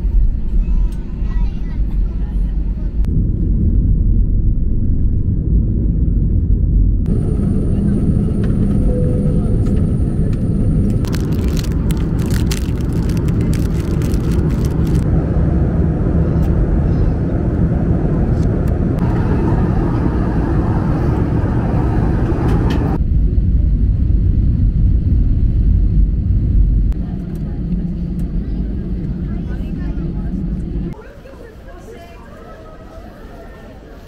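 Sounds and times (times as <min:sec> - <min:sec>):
aircraft cabin rumble in flight: 0:00.0 - 0:34.0.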